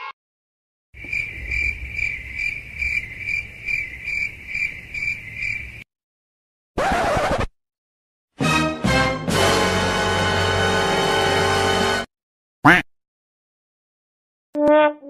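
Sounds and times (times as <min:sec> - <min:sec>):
cricket chirping: 0:01.0 - 0:05.8.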